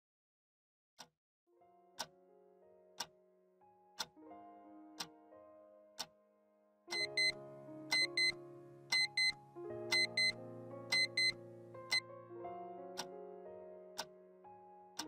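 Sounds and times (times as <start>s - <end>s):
alarm clock beeping: 6.9s - 12.0s
alarm clock ticking: 6.9s - 12.0s
soft music chords: 6.9s - 15.0s.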